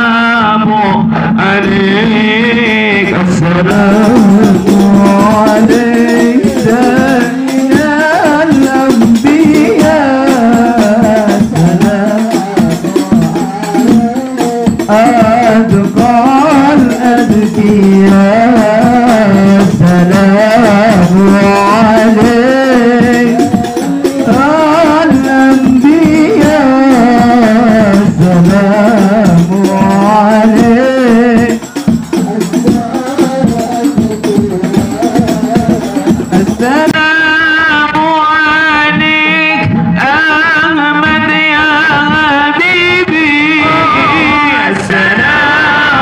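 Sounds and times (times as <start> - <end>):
men singing devotional song: 0.0 - 46.0
frame drums beating: 1.6 - 37.2.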